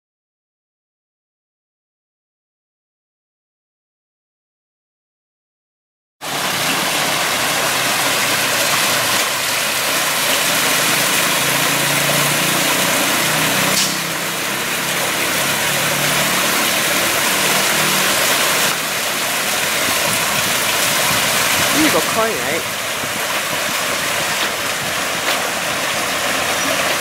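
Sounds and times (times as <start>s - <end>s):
waterfall splashing into a pond: 6.2s - 27.0s.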